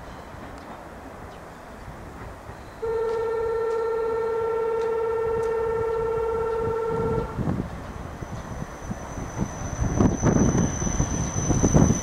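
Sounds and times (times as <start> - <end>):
railcar rumbling: 0.0 - 12.0
train horn blast: 2.8 - 7.5.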